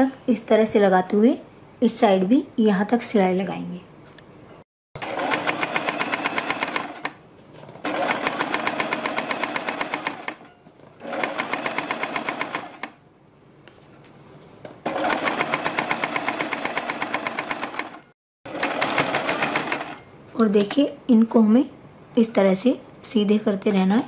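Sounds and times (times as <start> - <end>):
sewing machine stitching: 5.0 - 7.2, 7.8 - 13.0, 14.8 - 20.0.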